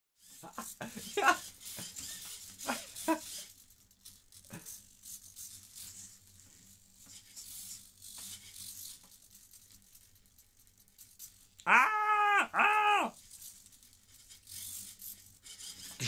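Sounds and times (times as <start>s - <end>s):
servo motors whirring and clicking: 0.2s - 11.6s.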